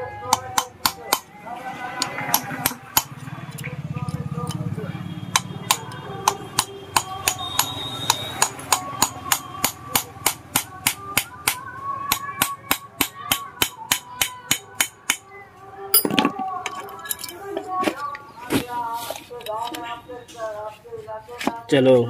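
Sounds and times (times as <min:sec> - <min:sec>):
hammer striking screwdriver: 0:05.3 - 0:15.2
metal clatter: 0:16.0 - 0:17.6.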